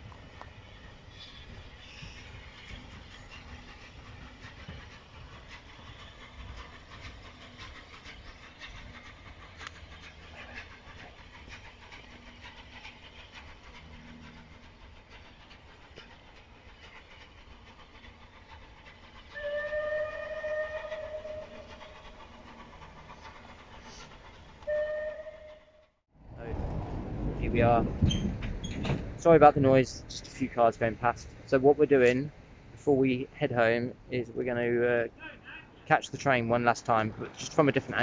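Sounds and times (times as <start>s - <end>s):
distant train rumble: 0.0s - 38.0s
steam locomotive whistle: 19.3s - 21.9s, 24.6s - 25.9s.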